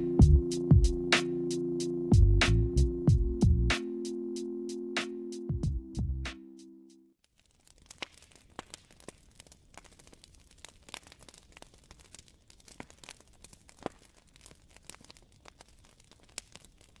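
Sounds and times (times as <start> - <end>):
crackling clicks and pops: 7.2 - 17.0.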